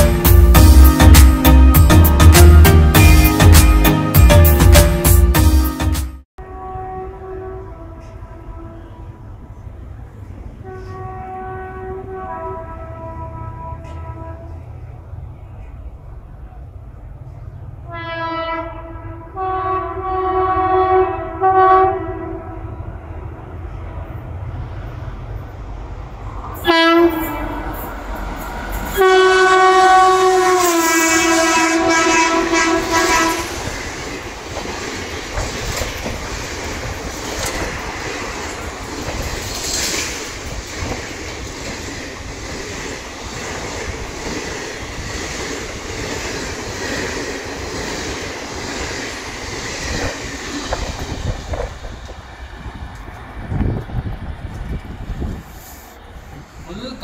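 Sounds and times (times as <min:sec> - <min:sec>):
locomotive air horn blast: 0:06.4 - 0:09.4, 0:10.6 - 0:14.6, 0:17.9 - 0:22.7, 0:26.6 - 0:27.8, 0:28.9 - 0:33.7
train wheels clacking over rail joints: 0:32.2 - 0:55.0.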